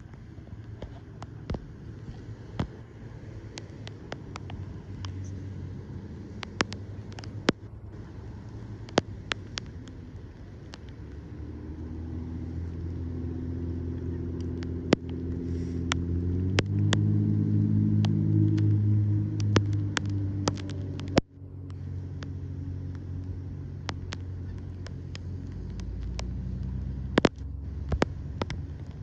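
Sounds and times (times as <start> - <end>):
vehicle engine hum: 0.0 - 29.0
sharp ticks: 6.3 - 11.2, 18.0 - 29.0.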